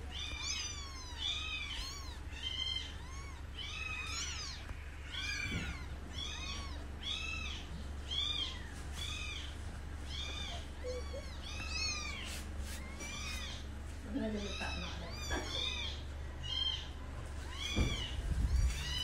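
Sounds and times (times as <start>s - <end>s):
steady low hum: 0.0s - 19.0s
kitten mewing: 10.1s - 13.6s.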